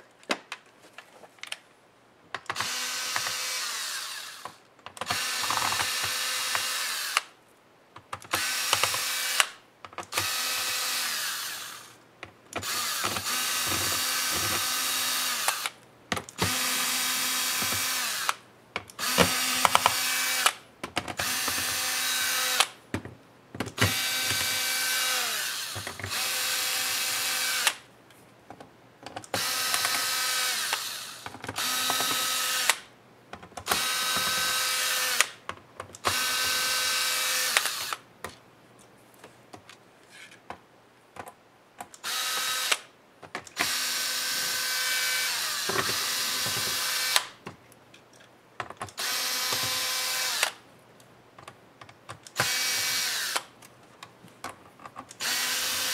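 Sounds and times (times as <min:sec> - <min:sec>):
electric screwdriver whining: 0:02.5 - 0:07.3, 0:08.3 - 0:11.9, 0:12.6 - 0:15.8, 0:16.4 - 0:18.4, 0:19.0 - 0:20.6, 0:21.2 - 0:22.8, 0:23.8 - 0:27.8, 0:29.3 - 0:32.8, 0:33.6 - 0:35.4, 0:36.0 - 0:38.0, 0:42.0 - 0:42.9, 0:43.6 - 0:47.4, 0:49.0 - 0:50.6, 0:52.3 - 0:53.5, 0:55.1 - 0:55.9.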